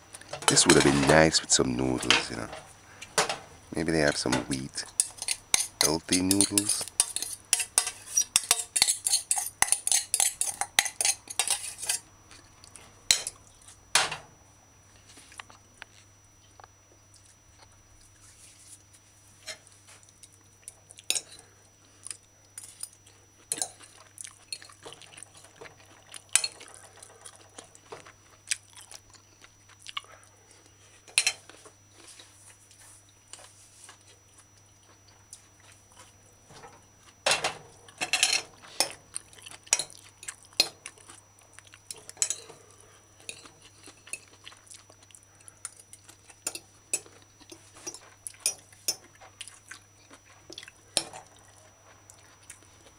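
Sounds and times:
fork clinking on plate: 5.0s - 12.0s.

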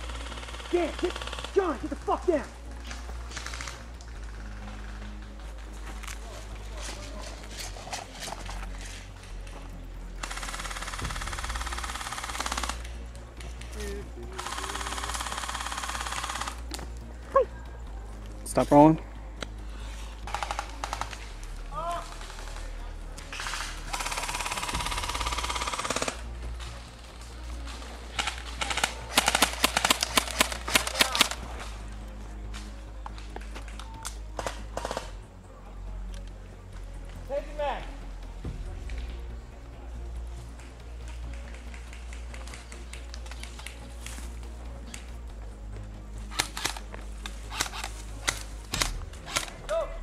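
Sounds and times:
airsoft rifle automatic burst: 0.0s - 2.1s, 10.2s - 12.9s, 14.4s - 16.6s, 20.3s - 21.3s, 23.3s - 26.2s, 28.2s - 31.4s, 34.4s - 35.1s, 46.3s - 46.8s
sharp clicks: 20.2s - 31.6s, 46.3s - 49.7s
airsoft gun firing full auto: 28.2s - 31.4s.

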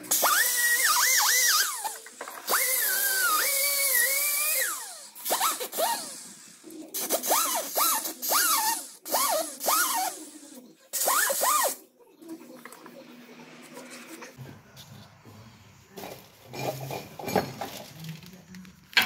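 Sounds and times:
pneumatic wrench whining: 0.0s - 11.8s.

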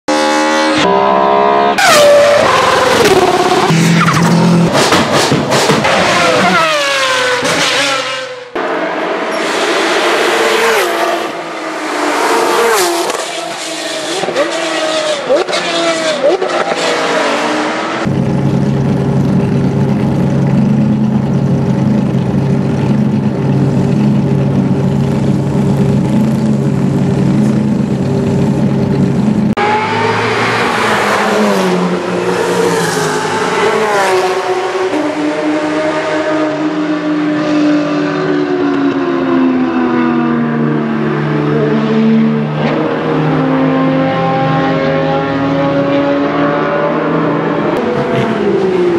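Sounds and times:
race cars accelerating: 0.1s - 18.1s, 29.5s - 48.9s
race car engines idling: 18.0s - 29.6s.

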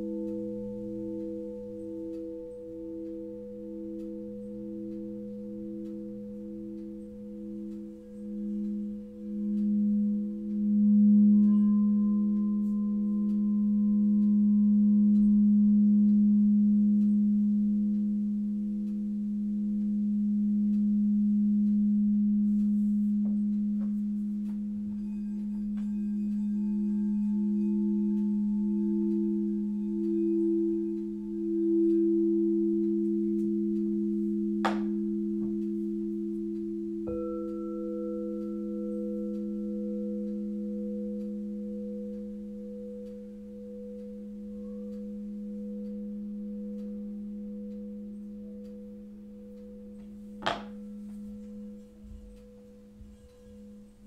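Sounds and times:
crystal singing bowls chord: 0.0s - 54.0s
sharp clink: 34.6s - 35.6s.

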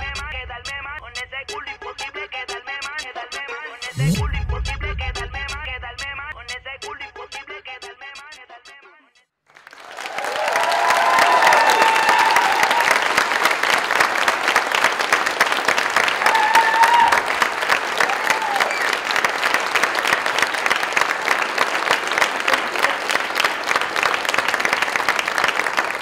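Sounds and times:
audience applauding: 9.5s - 26.0s.

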